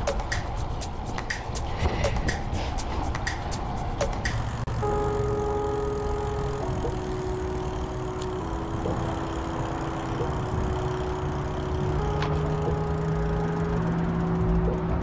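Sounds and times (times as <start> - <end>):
steady low rumble: 0.0 - 15.0
sustained music chords: 0.0 - 15.0.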